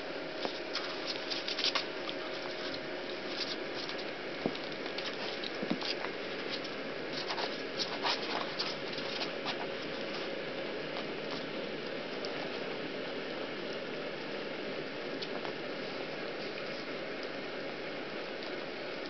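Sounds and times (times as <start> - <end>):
puppies clicking and scratching: 0.4 - 12.8.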